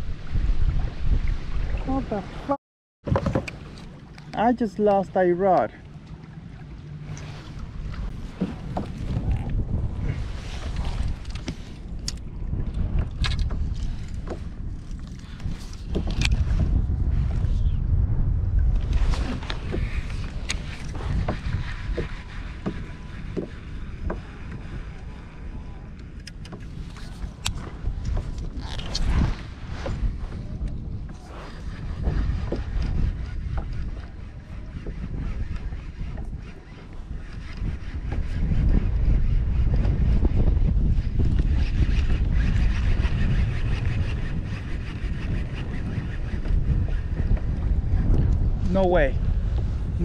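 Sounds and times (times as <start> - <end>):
wind rumbling on microphone: 0.0 - 50.0
light knocks and clicks on boat: 3.1 - 4.6, 5.4 - 9.6, 10.7 - 16.6, 18.7 - 25.1, 25.8 - 29.2.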